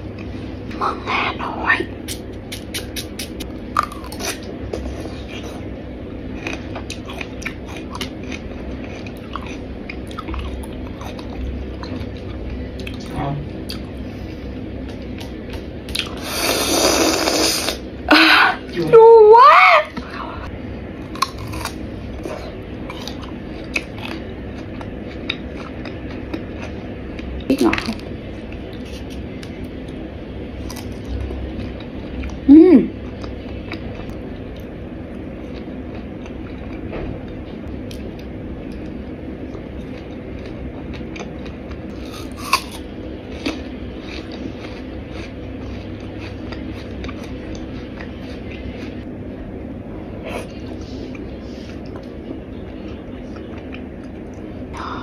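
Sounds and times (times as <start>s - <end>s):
steady low hum: 0.0s - 55.0s
mouth clicks and crunches: 2.0s - 4.4s
wet chewing: 2.0s - 5.7s
chewing crisp iced fruit: 2.1s - 5.7s, 6.3s - 13.9s, 35.4s - 49.0s.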